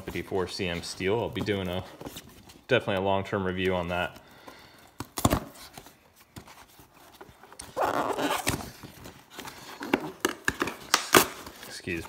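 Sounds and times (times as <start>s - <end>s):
cardboard scraping and rubbing: 0.0s - 3.0s, 5.5s - 10.5s.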